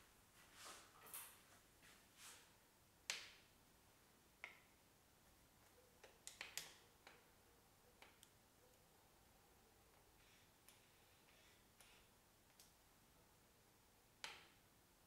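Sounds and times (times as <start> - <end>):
faint sharp clicks and ticks: 8.0 - 8.8.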